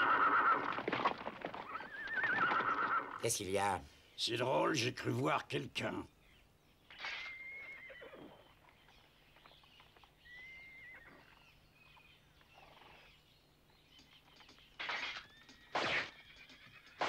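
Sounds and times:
horse whinnying: 0.0s - 3.2s, 6.9s - 8.6s, 10.3s - 11.4s.

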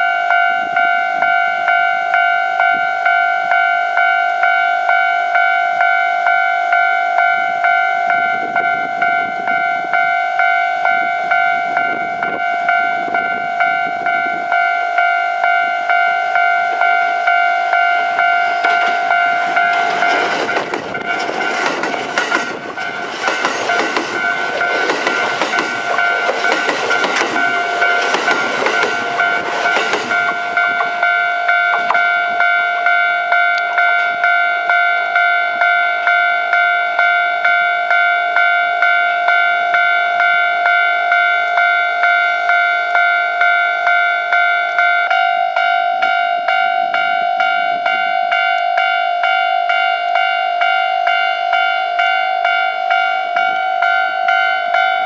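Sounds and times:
level crossing warning bell: 0.0s - 55.0s
train wheel rumble and rail clatter: 16.6s - 34.4s.

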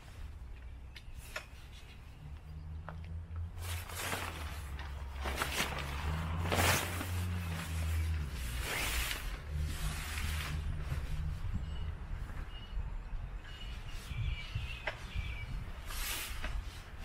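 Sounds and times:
steady low rumble: 2.2s - 13.4s
tent fabric swishing and rustling: 3.5s - 11.5s, 15.4s - 17.0s.

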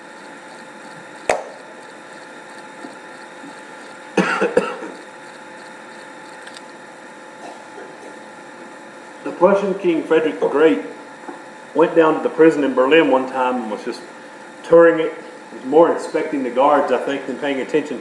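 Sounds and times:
person clearing throat: 4.2s - 5.0s, 7.4s - 8.2s
room tone hiss: 8.2s - 18.0s.

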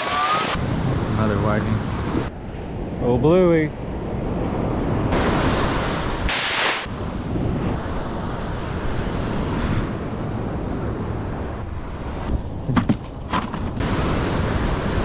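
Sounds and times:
ocean surf breaking: 3.8s - 12.6s, 13.8s - 15.0s
sharp hiss: 6.3s - 6.9s.

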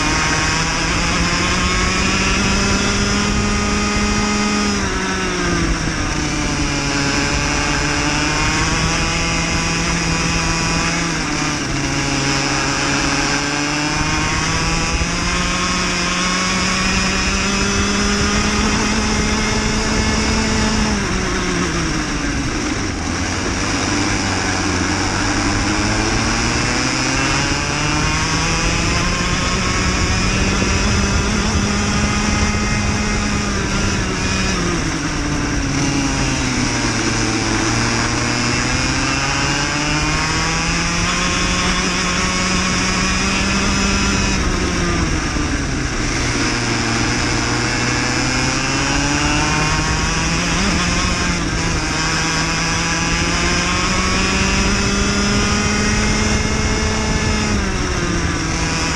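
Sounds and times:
racing kart engine revving: 0.0s - 58.9s.

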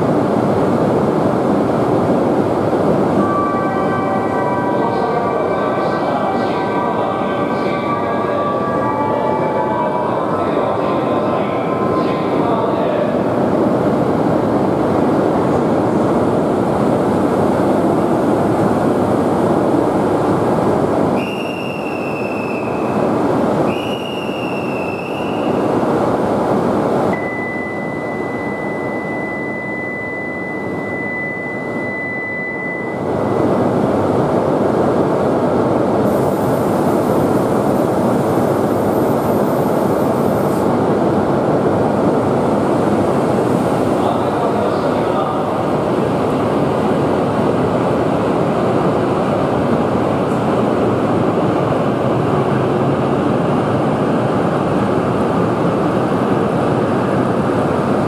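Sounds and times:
train rushing noise: 0.0s - 58.0s
short high whistle tones: 21.2s - 22.9s, 23.7s - 25.6s, 27.2s - 33.4s
steady high beep: 27.2s - 33.5s.

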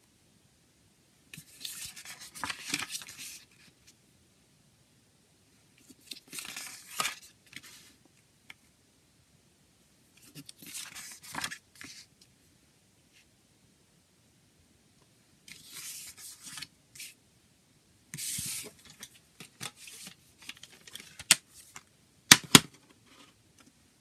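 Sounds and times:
paper pages rustling: 1.4s - 3.7s, 5.8s - 8.0s, 10.2s - 12.1s, 15.5s - 17.2s, 18.2s - 21.8s.

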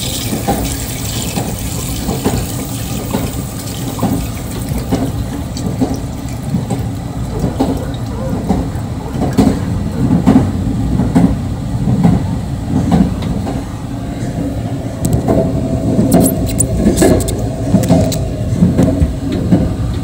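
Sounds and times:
train rumbling: 0.0s - 20.0s
clicks and rattles: 16.1s - 18.3s.

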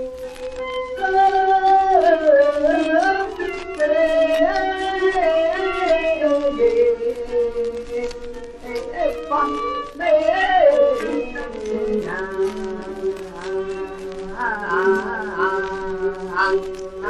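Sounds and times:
old song recording melody: 0.0s - 17.0s
record surface crackle: 0.0s - 17.0s.

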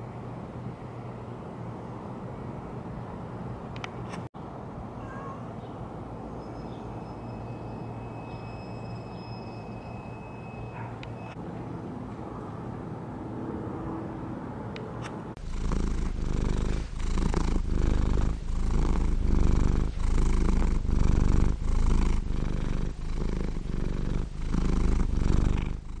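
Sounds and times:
faint street ambience: 0.0s - 19.3s
cat purring: 15.4s - 26.0s.

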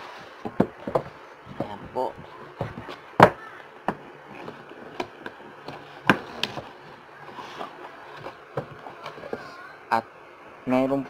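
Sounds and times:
cardboard knocks and taps: 0.4s - 4.0s.

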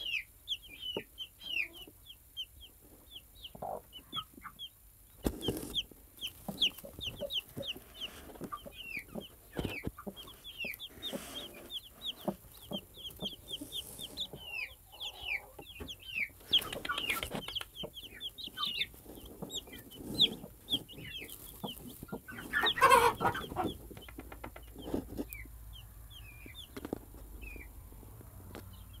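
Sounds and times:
chicks peeping: 0.0s - 29.0s
hen clucking: 0.0s - 29.0s
straw rustling: 5.2s - 8.6s, 18.2s - 23.8s.

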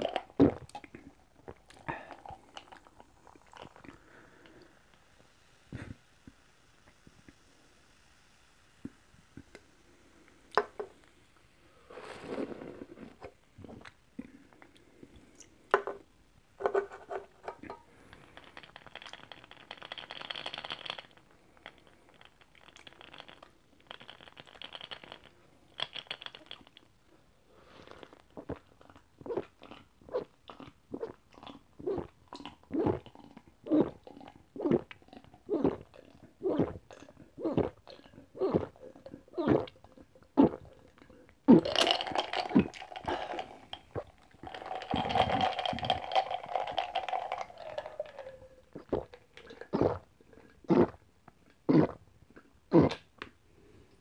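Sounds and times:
person gulping: 0.0s - 4.7s, 27.8s - 53.3s
person sipping: 0.0s - 7.1s, 9.5s - 15.9s, 27.5s - 51.0s, 51.7s - 53.8s.

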